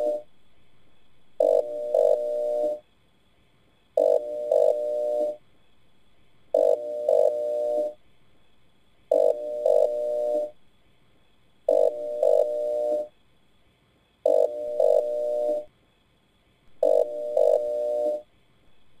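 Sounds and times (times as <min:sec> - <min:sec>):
electronic blips and buzzing tone: 0:00.0 - 0:00.3, 0:01.4 - 0:02.8, 0:04.0 - 0:05.4, 0:06.6 - 0:08.0, 0:09.1 - 0:10.6, 0:11.7 - 0:13.1, 0:14.3 - 0:15.7, 0:16.8 - 0:18.2.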